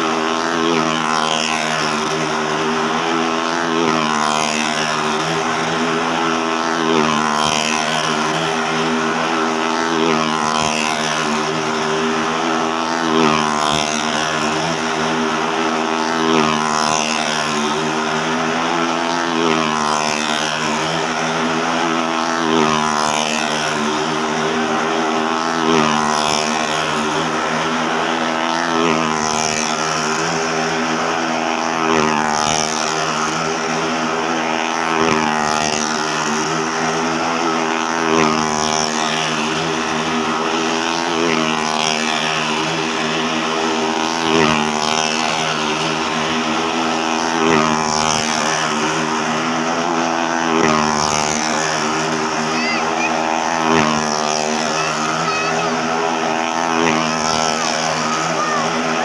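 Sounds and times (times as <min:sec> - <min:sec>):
motorcycle engine at high revs: 0:00.0 - 0:59.0.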